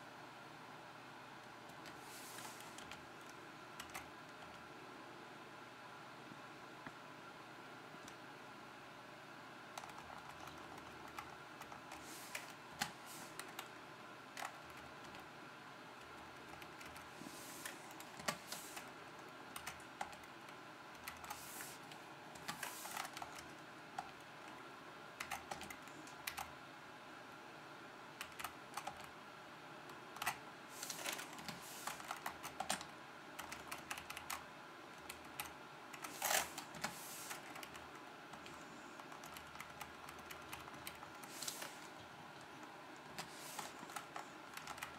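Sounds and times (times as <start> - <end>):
computer keyboard key clicks: 25.2 - 26.5, 28.2 - 29.1.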